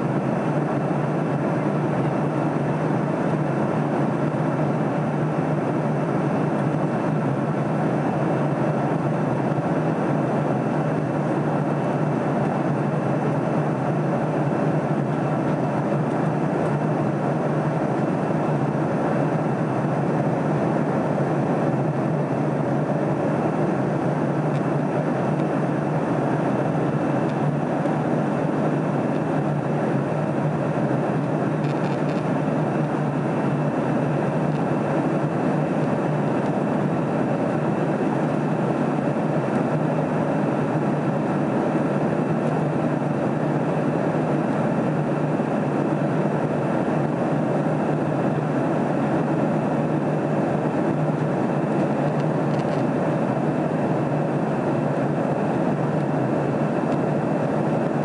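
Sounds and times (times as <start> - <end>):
constant low hum: 0.0 - 58.0
jet engines droning: 0.0 - 58.0.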